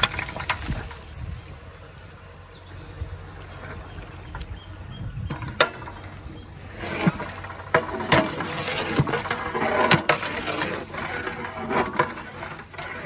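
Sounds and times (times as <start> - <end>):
metal spatula scraping pot: 5.3 - 13.0.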